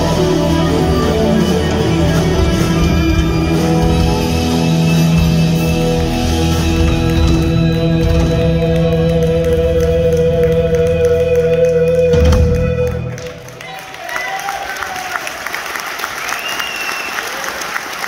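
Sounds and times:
blues-rock band playing: 0.0 - 13.6.

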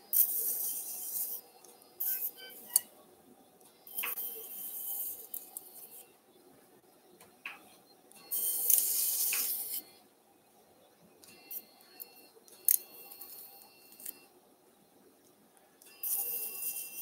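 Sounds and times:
high electronic activation tone: 0.0 - 2.9, 3.8 - 6.2, 8.2 - 10.0, 15.9 - 17.0.

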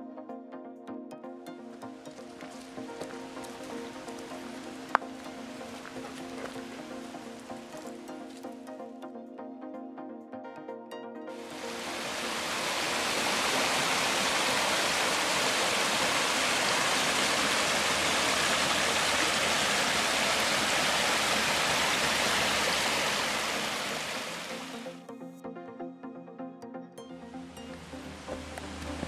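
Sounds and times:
brook water rushing over rocks: 2.1 - 7.9, 11.4 - 24.8.

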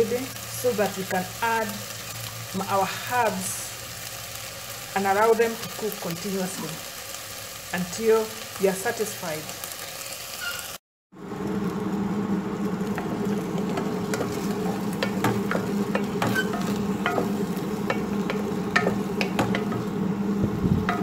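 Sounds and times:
chicken sizzling in hot oil: 0.0 - 21.0
wooden spoon scraping a pot: 12.9 - 20.0.

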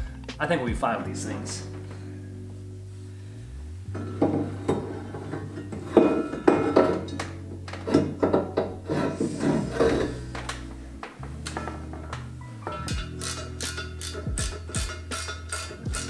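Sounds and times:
background music with bass line: 0.0 - 16.0
metal clanks and knocks: 3.9 - 16.0.

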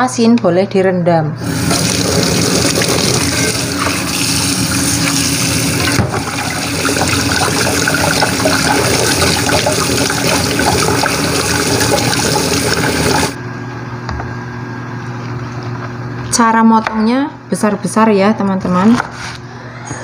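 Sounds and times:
tap water running and splashing: 1.4 - 13.4.

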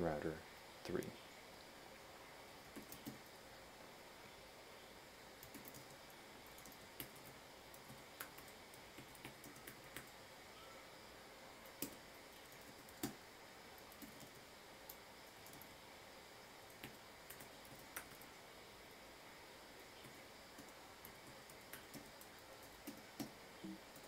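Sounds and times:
computer keyboard typing: 2.7 - 3.3, 5.4 - 10.2, 11.6 - 13.2, 13.8 - 15.7, 16.7 - 18.3, 20.0 - 24.0.

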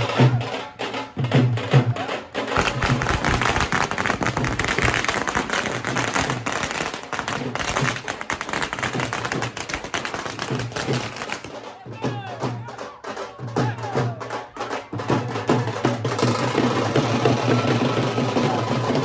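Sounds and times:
rapid crackle of sharp snaps: 2.6 - 11.5.

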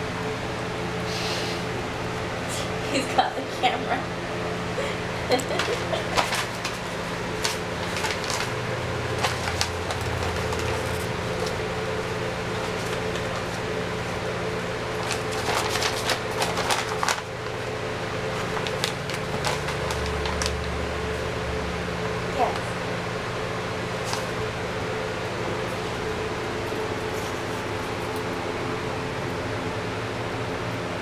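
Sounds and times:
steady background hum: 0.0 - 31.0
paper rustling and crinkling: 5.4 - 14.2, 14.9 - 21.2, 23.9 - 24.4.

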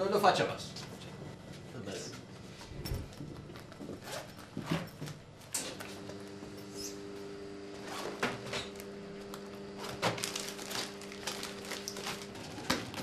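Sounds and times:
espresso machine pump humming: 5.6 - 13.0.

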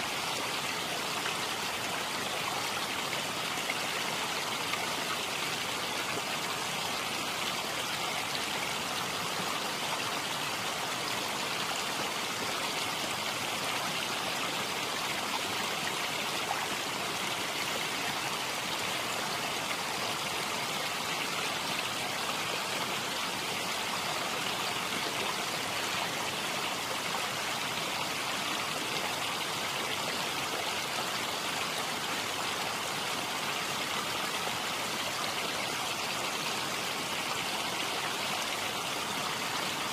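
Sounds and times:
stream water rushing: 0.0 - 39.9.

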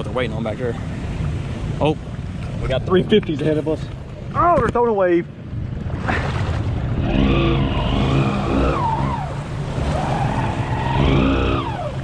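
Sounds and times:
atv engine revving: 7.0 - 12.0
whine rising and falling: 7.0 - 12.0.

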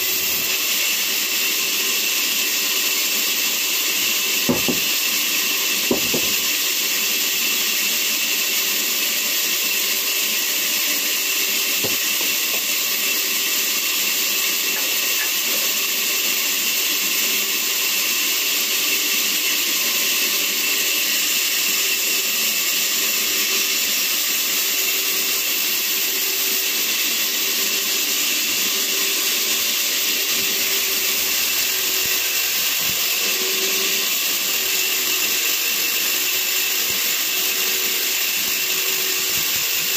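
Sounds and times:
band saw cutting log: 0.0 - 39.9.

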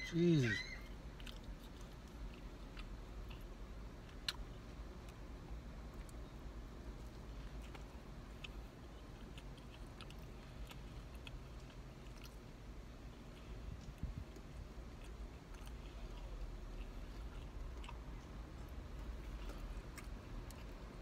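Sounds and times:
steady low hum: 0.0 - 21.0
person chewing: 0.4 - 21.0.

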